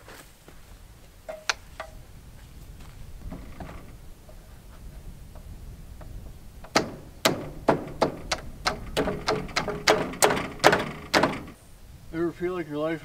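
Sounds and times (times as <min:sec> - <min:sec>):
hammer blows ringing: 0:06.7 - 0:11.6.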